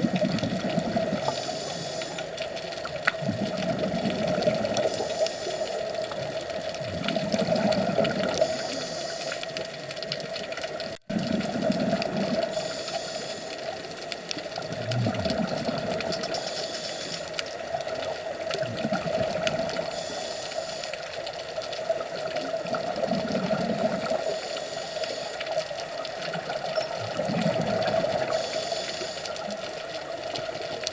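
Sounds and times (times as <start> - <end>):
bubbling exhale rumble: 0.0 - 10.1, 10.8 - 24.6, 25.9 - 30.9
steady hum: 0.4 - 6.8, 7.8 - 9.9, 12.3 - 14.5
regulator breathing hiss: 1.2 - 2.4, 4.8 - 6.0, 8.4 - 9.5, 12.5 - 13.8, 16.4 - 17.4, 19.9 - 21.1, 24.2 - 25.4, 28.2 - 29.5.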